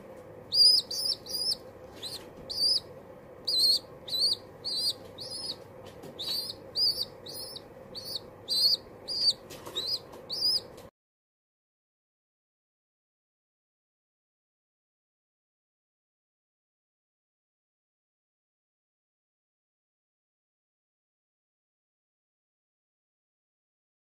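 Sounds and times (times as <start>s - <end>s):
young pigeon squeaking: 0.5s - 10.9s.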